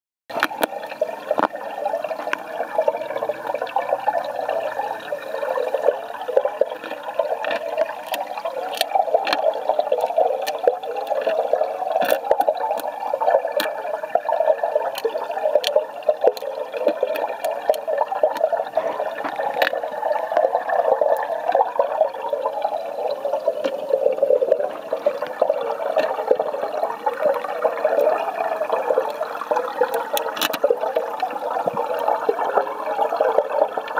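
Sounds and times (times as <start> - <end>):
aquarium water bubbling: 0.3 - 33.9
sharp clicks: 6.8 - 11.4, 29.8 - 30.7.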